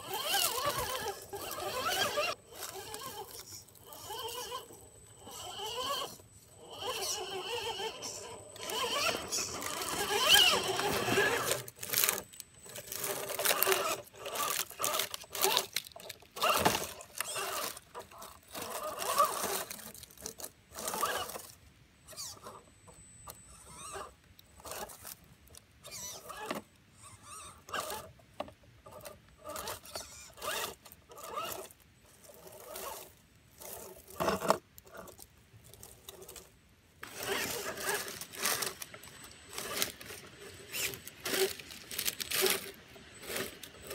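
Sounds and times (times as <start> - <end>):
electric motor whining: 0.0 - 15.8, 16.4 - 21.5, 36.2 - 43.9
tyres knocking and scraping rocks: 8.6 - 12.2.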